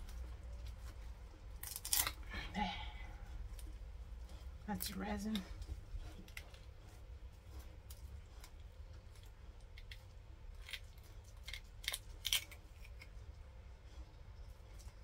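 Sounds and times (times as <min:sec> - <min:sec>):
mould clicks and crackles: 0:00.0 - 0:02.2, 0:07.9 - 0:13.2.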